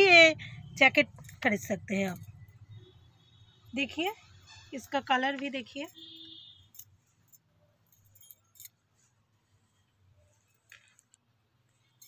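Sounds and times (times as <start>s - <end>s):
clothes rustling and clicking: 4.7s - 6.0s, 6.6s - 12.0s.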